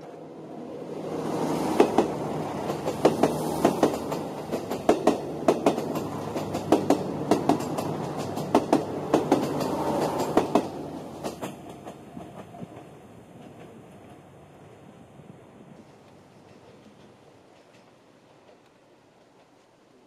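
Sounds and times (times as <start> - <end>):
train cars rumbling: 0.0 - 19.6
train wheels clicking over rail joints: 1.5 - 14.2, 15.9 - 19.7.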